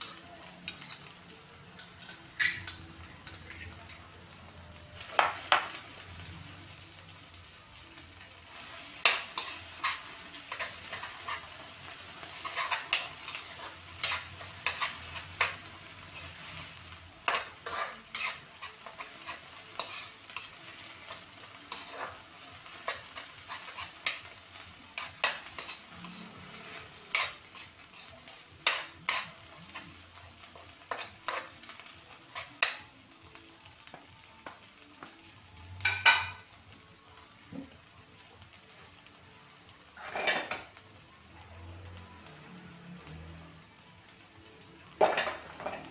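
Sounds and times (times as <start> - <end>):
meat sizzling in a wok: 0.0 - 45.9
metal spatula scraping a pan: 8.5 - 24.3, 24.9 - 32.8, 40.0 - 40.7.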